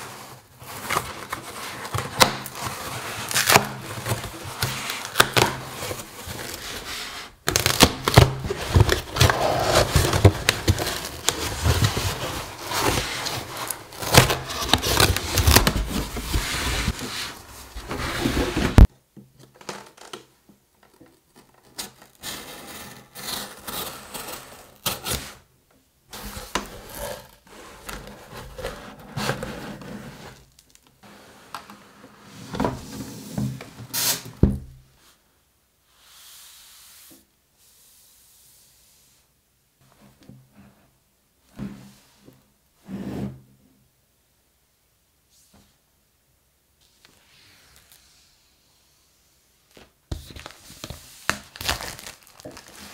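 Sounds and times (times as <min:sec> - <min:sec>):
cardboard box handling: 0:07.5 - 0:18.9.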